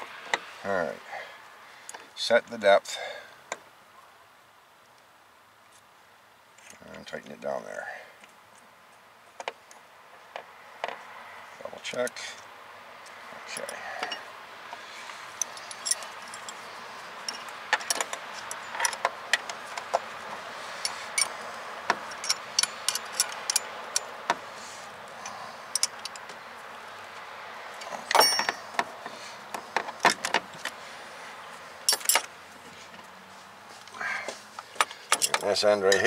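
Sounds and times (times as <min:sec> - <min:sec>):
metal hand tools clinking: 0:15.4 - 0:16.6, 0:17.2 - 0:19.1, 0:20.8 - 0:21.4, 0:22.0 - 0:24.2, 0:27.8 - 0:28.7, 0:31.9 - 0:32.3.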